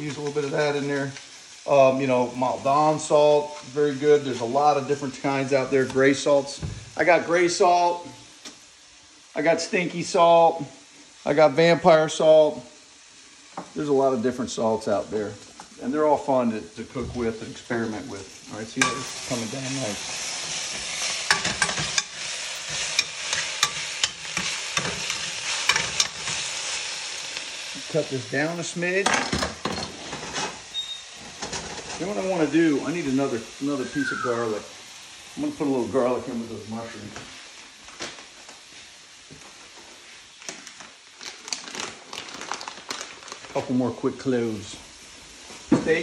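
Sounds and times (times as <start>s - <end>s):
greens sizzling in oil: 0.0s - 46.0s
garlic skins crackling: 16.8s - 29.1s, 40.4s - 44.6s
metal tongs clicking on pan: 21.3s - 26.3s.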